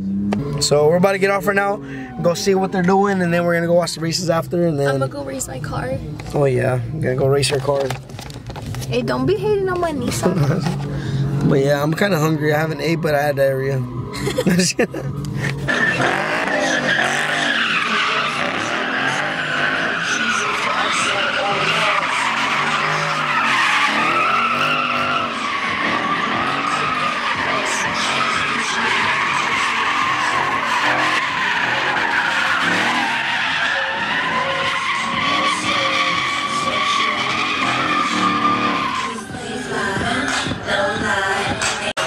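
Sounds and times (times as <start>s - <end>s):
car engine revving hard: 0.0s - 5.2s, 10.1s - 41.7s
tyres squealing: 11.4s - 41.3s.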